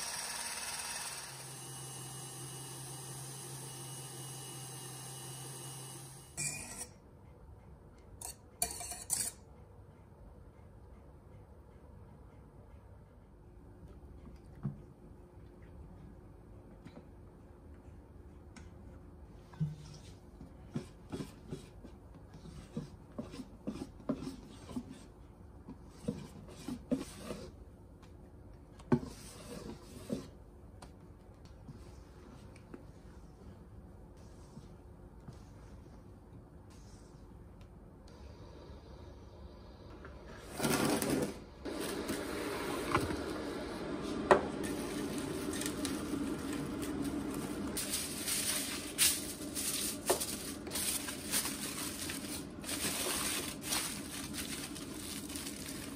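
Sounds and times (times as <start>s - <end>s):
whisk clinking and scraping bowl: 8.2s - 9.4s
cling film rustling and crinkling: 44.6s - 55.9s.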